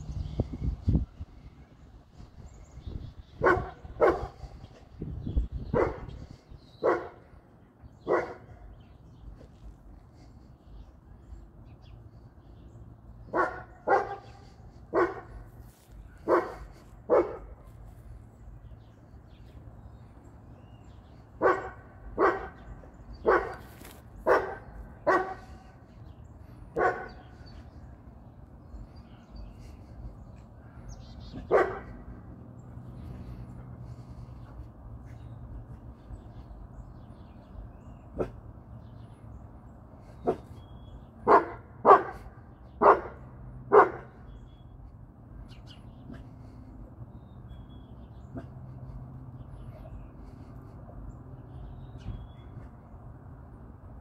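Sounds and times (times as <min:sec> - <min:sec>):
large dog barking: 0:03.4 - 0:04.5, 0:05.7 - 0:06.2, 0:06.8 - 0:07.3, 0:08.0 - 0:08.6, 0:13.3 - 0:15.5, 0:16.2 - 0:17.6, 0:21.4 - 0:25.7, 0:26.7 - 0:27.5, 0:31.3 - 0:32.1, 0:41.2 - 0:44.2.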